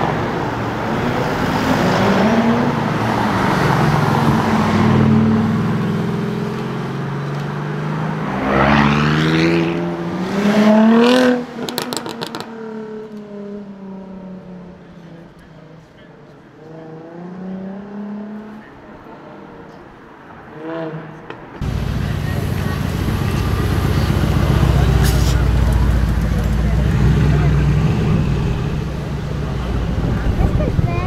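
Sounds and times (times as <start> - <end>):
exhaust pops and crackles: 11.6 - 12.5, 21.6 - 27.5
quieter car engine: 21.0 - 31.0
sports car engine accelerating: 21.6 - 30.7.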